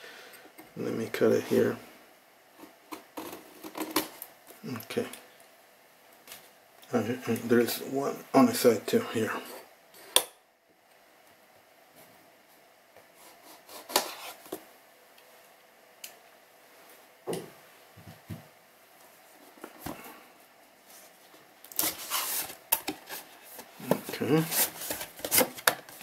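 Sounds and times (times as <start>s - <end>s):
cardboard scraping and rustling: 21.8s - 26.0s.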